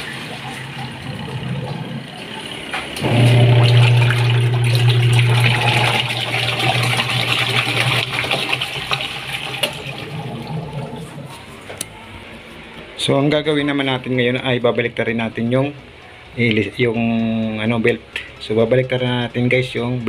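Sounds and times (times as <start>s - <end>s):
water swishing: 0.0s - 12.2s
washing machine motor hum: 0.0s - 12.6s.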